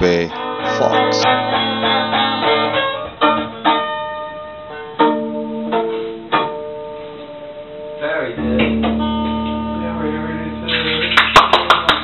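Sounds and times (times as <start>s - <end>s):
plucked string instrument music: 8.4s - 11.1s.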